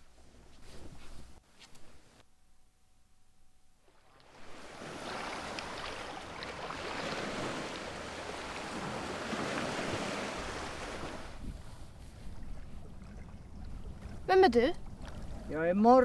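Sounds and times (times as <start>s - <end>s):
faint water splashes: 3.8s - 16.0s
waves washing against rocks: 4.4s - 11.4s.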